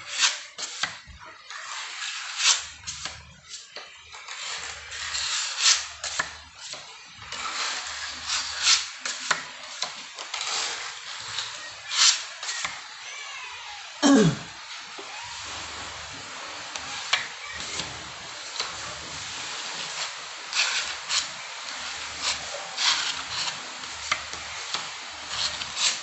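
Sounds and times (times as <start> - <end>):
putty knife scraping wall: 0.1 - 3.6, 4.3 - 12.8, 19.8 - 26.0.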